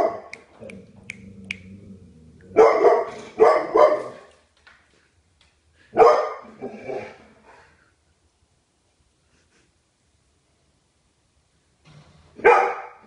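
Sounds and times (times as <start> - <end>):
dog barking: 0.0 - 0.4, 2.6 - 4.3, 6.0 - 7.2, 12.4 - 13.0.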